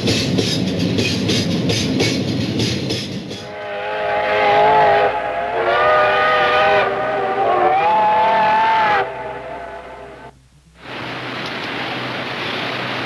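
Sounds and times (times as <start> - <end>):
steam locomotive whistles: 3.2 - 10.4.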